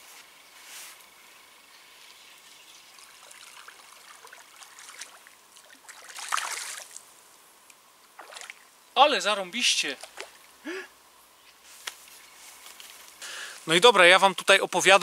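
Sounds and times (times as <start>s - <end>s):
faint splashing and trickling water: 1.8s - 9.0s, 9.8s - 10.6s
fish thrashing splash: 3.2s - 7.0s.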